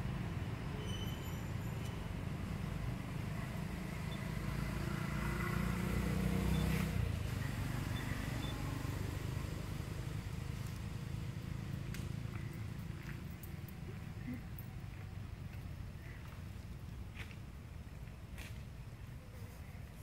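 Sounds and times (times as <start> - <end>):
motor vehicle passing: 2.0 - 16.6.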